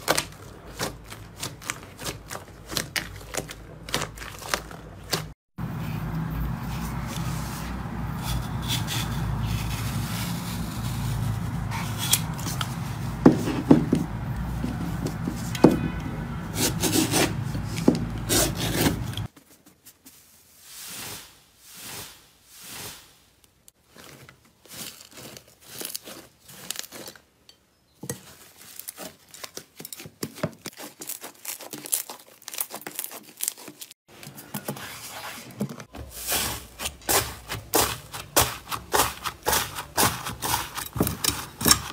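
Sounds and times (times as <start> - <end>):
slime squelching: 28.3 - 33.9.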